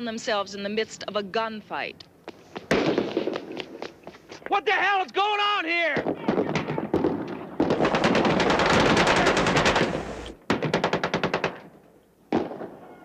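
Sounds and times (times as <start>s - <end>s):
submachine gun fire: 6.3s - 11.7s.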